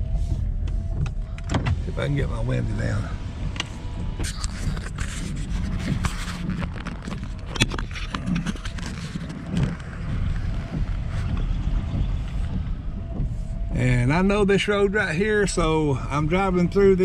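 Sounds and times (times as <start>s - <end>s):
car engine and road rumble: 0.0s - 17.0s
sharp clicks and knocks: 3.3s - 15.0s.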